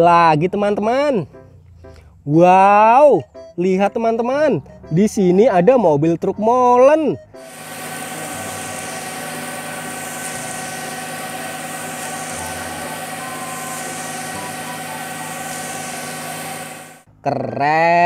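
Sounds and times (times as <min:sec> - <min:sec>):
diesel engine running: 0:07.4 - 0:17.1
thin constant whine: 0:07.4 - 0:17.1
concrete pouring down chute: 0:07.5 - 0:17.0.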